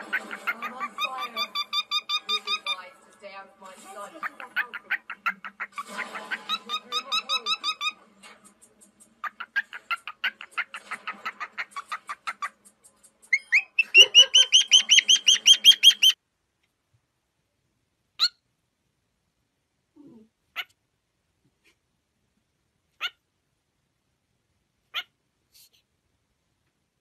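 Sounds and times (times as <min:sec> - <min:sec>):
cockatiel chirping fast: 0:00.0 - 0:02.8, 0:04.5 - 0:08.0, 0:09.2 - 0:12.6, 0:13.2 - 0:16.2, 0:18.2 - 0:18.4.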